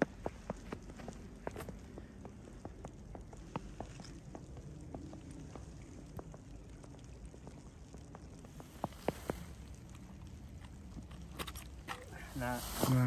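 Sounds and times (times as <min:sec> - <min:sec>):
footsteps crunching on snow: 0:08.4 - 0:10.0, 0:11.9 - 0:13.0.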